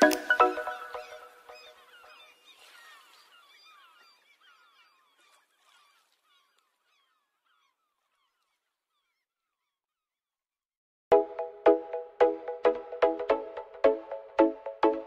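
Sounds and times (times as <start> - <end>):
faint high chirping calls: 0.0 - 10.0.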